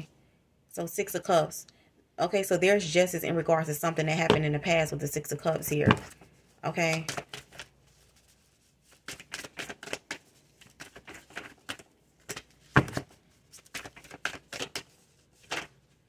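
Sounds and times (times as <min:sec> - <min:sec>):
cards being shuffled: 0:05.6 - 0:16.0.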